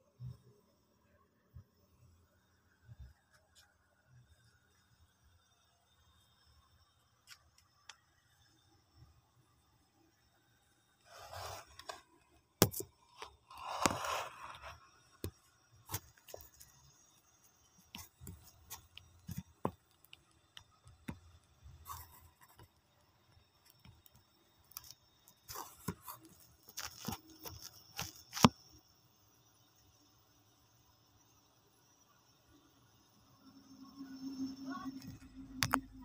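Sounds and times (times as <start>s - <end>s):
handling rustling and scraping: 11.0s - 20.4s, 24.7s - 28.6s.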